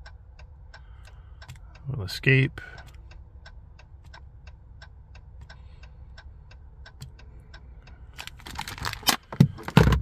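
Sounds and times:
flashers ticking: 0:00.0 - 0:08.4
rustling and handling noise: 0:08.1 - 0:10.0.

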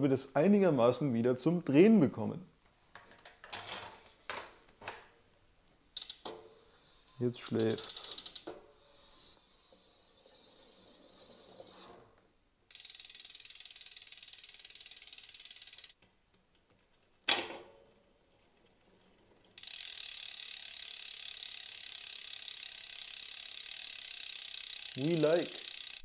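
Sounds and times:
bike freehub clicking: 0:06.0 - 0:09.1, 0:12.7 - 0:16.1, 0:19.5 - 0:26.0.

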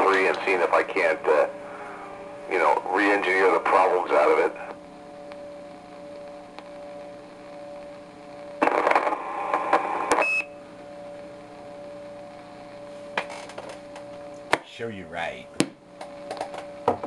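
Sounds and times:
noisy radio transmission burst: 0:00.0 - 0:05.0, 0:05.6 - 0:10.4
radio speaker hiss and hum: 0:00.0 - 0:17.0
high roger beep: 0:10.1 - 0:10.6.

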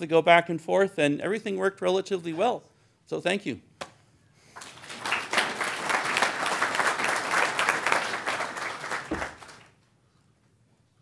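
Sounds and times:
audience applauding: 0:04.6 - 0:09.8.

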